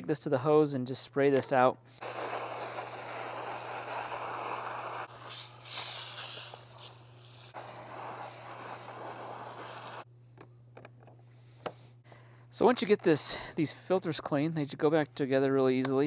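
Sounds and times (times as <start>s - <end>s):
hose spray nozzle hissing: 2.0s - 10.1s.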